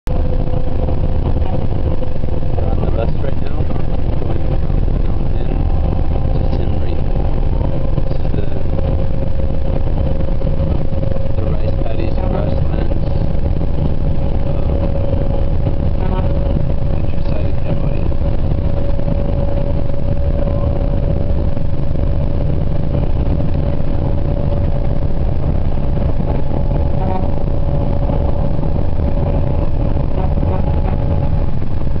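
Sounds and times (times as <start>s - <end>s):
bus engine and road rumble: 0.0s - 32.0s
constant hum: 0.1s - 32.0s.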